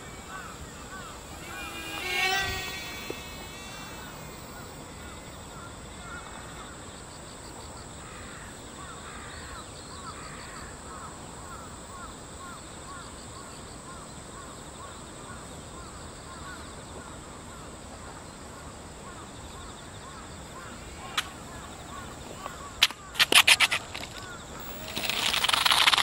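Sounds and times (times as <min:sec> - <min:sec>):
model airplane motors whirring: 0:00.0 - 0:07.3, 0:20.1 - 0:26.0
faint bird calls: 0:00.0 - 0:26.0
sharp clicks: 0:22.8 - 0:26.0.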